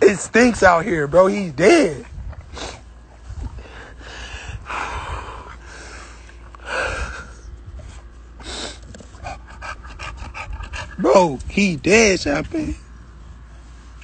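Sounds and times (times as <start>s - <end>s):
low rumble: 0.0s - 14.0s
person breathing heavily: 2.5s - 11.0s.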